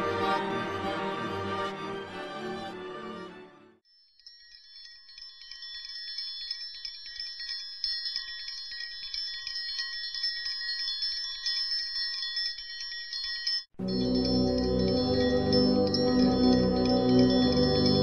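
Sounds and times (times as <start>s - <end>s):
music: 0.0s - 6.1s, 13.8s - 18.0s
chimes tinkling: 3.8s - 18.0s.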